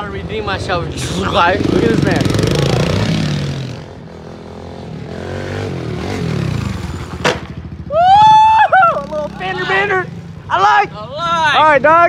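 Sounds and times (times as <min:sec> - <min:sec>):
dirt bike engine revving: 0:00.0 - 0:12.0
person shouting excitedly: 0:07.9 - 0:12.0.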